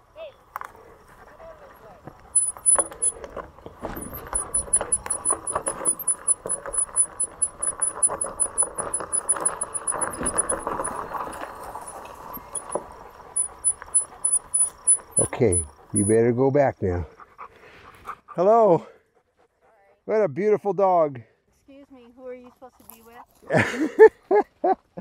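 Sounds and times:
bike rattling on dirt trail: 0.4 - 16.2
high-pitched ticking: 2.3 - 3.2, 4.1 - 11.0, 12.4 - 16.2.

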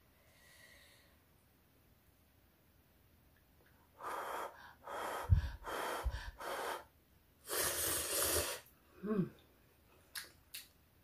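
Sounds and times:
blowing on noodles: 4.0 - 8.7
slurping noodles: 7.5 - 8.7.

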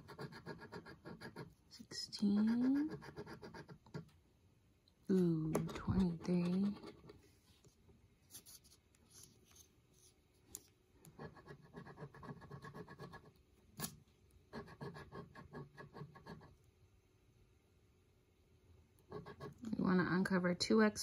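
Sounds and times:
fingernail scratching lottery ticket: 0.0 - 1.6, 2.3 - 4.1, 5.7 - 7.2, 11.1 - 16.5, 19.1 - 19.6.

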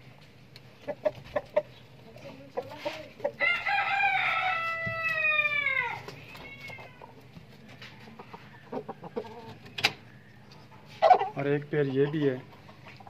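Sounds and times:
rooster crowing: 3.4 - 6.8.

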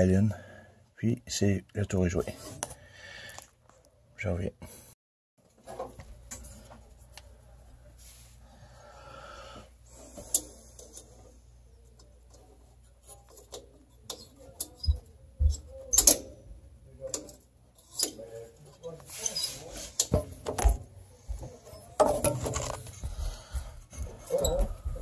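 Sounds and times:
small metal clicks and knocks: 17.0 - 19.0.

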